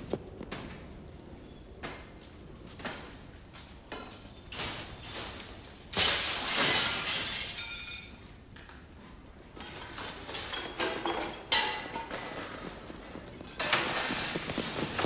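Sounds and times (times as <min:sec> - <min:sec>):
loud crash clattering: 0:05.9 - 0:08.0
glass smashing: 0:05.9 - 0:08.2.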